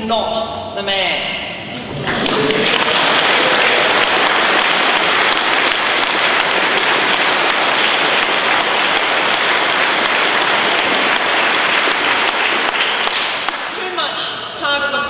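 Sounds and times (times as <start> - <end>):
audience applauding: 1.7 - 14.0.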